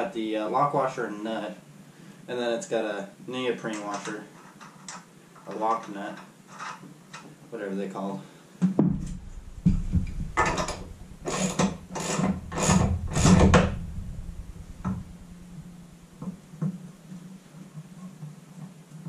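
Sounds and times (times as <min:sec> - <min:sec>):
steady low hum: 0:08.8 - 0:17.4.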